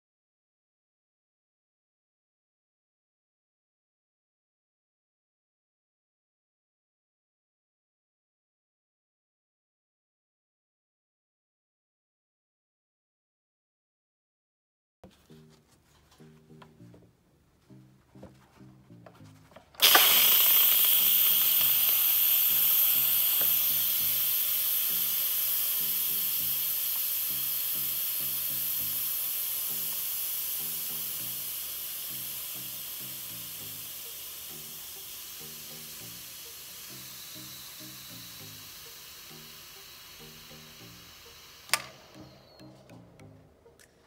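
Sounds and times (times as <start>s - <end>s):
pressure cooker venting steam: 19.8s - 42.8s.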